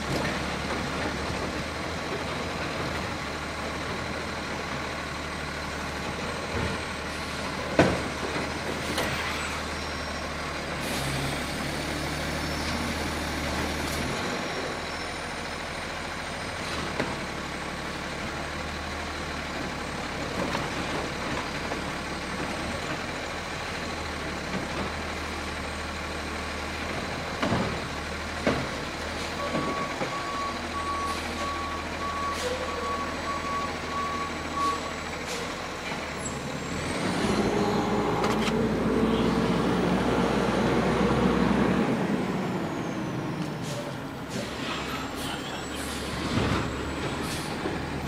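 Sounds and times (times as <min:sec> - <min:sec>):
garbage truck diesel engine: 0:00.0 - 0:48.0
air brake hiss: 0:47.2 - 0:47.6.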